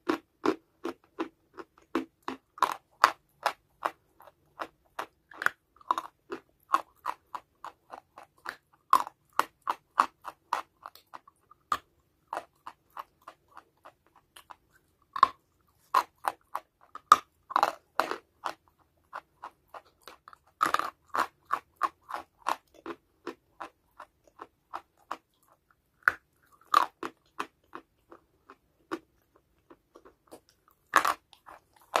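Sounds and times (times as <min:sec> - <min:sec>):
chalky clay being chewed: 0:00.0 - 0:32.0.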